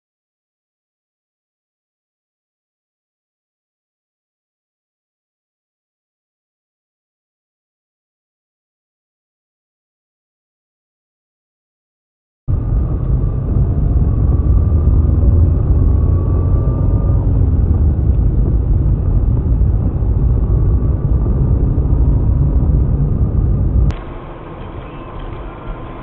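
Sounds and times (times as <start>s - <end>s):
car driving rumble: 12.5s - 26.0s.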